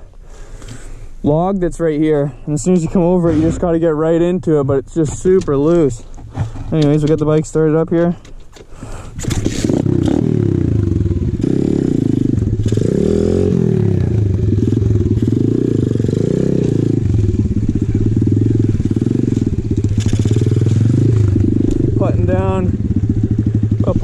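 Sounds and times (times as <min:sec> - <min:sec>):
motorbike engine revving: 0:09.2 - 0:24.0.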